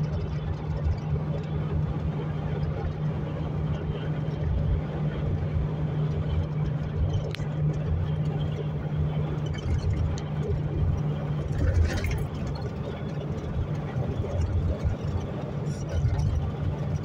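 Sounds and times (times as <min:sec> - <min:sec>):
low hum: 0:00.0 - 0:17.0
vehicle road and engine noise: 0:00.0 - 0:17.0.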